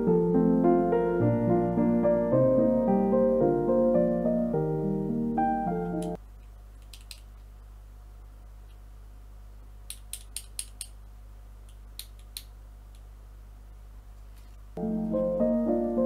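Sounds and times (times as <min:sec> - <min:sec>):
small plastic clicks: 0:06.0 - 0:07.4, 0:09.9 - 0:11.0.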